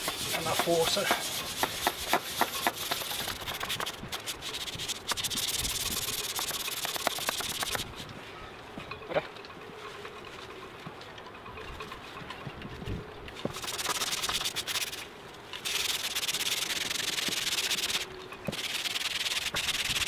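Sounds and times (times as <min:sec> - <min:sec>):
sponge scrubbing: 0:00.0 - 0:07.8, 0:13.5 - 0:15.0, 0:15.6 - 0:20.0.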